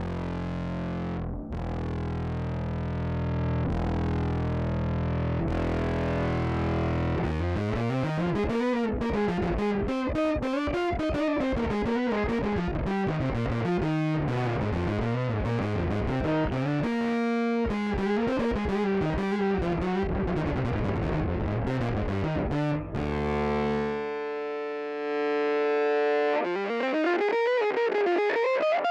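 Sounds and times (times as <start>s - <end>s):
electric bass with octave effect: 0.0s - 28.9s.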